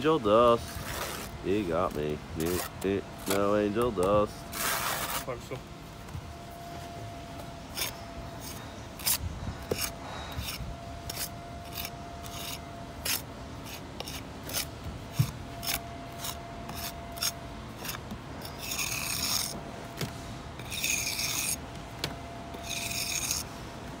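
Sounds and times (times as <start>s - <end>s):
tool scraping mortar joints: 0.6s - 5.4s, 7.7s - 19.6s, 20.6s - 21.6s, 22.5s - 23.5s.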